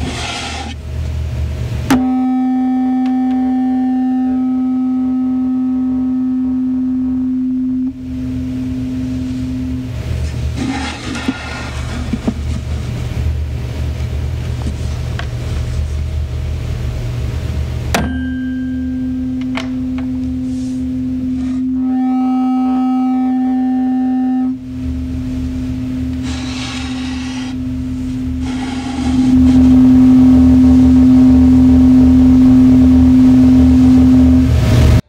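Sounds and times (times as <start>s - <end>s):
tuning fork ringing pure tone: 1.9s - 10.1s, 18.0s - 34.5s.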